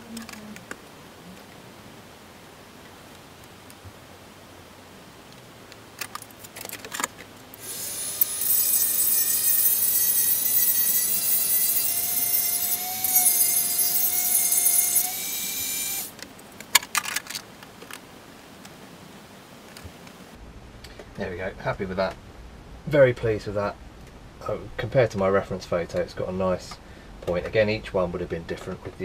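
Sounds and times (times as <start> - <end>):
handling clicks and knocks: 6.0 - 7.4
rotary tool high whine: 7.6 - 16.2.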